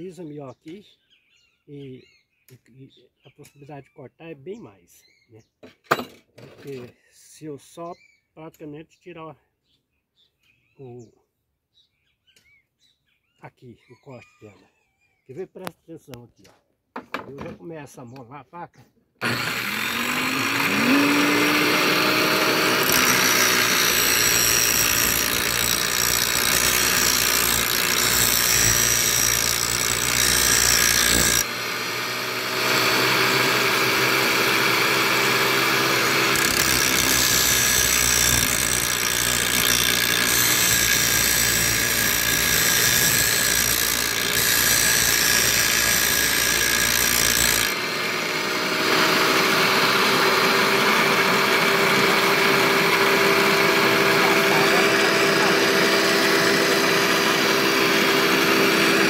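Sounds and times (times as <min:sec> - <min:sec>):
angle grinder running: 0:19.2 - 0:59.0
grinding steel blade: 0:19.2 - 0:59.0.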